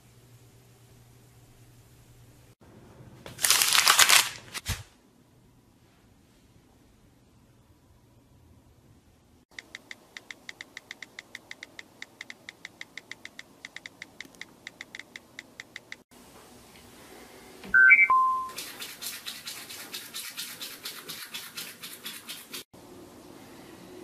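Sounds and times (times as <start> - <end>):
phone keyboard tapping clicks: 9.6 - 16.0
three-note electronic chime: 17.8 - 18.5
toothbrush scrubbing: 18.5 - 22.7.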